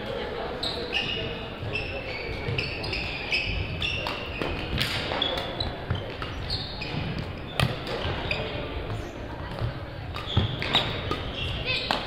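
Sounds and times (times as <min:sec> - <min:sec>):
shoes squeaking on court floor: 0:00.4 - 0:12.0
racket hitting shuttlecock: 0:03.9 - 0:08.3, 0:09.5 - 0:12.0.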